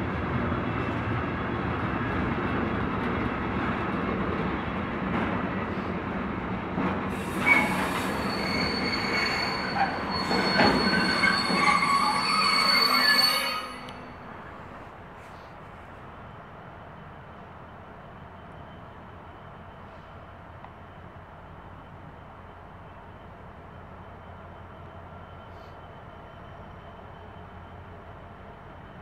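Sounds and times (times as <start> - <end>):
freight train rumbling past: 0.0 - 29.0
train wheels squealing on rails: 6.8 - 29.0.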